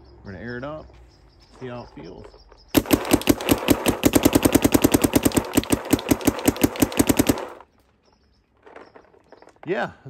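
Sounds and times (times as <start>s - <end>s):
paintball marker firing rapidly: 2.8s - 7.7s.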